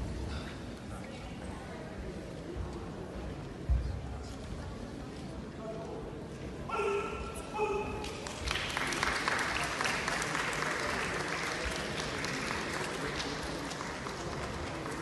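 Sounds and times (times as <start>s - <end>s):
audience applauding: 8.0s - 15.0s.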